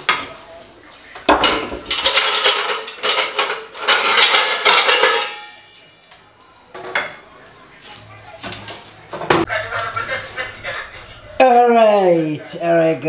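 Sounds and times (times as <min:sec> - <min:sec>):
dishes and cutlery clattering: 0:01.2 - 0:05.9, 0:06.7 - 0:07.3.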